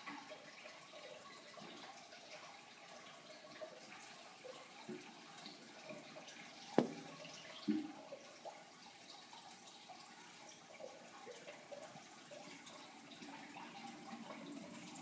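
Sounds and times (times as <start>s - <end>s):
plastic bucket knocking: 6.8s - 7.2s.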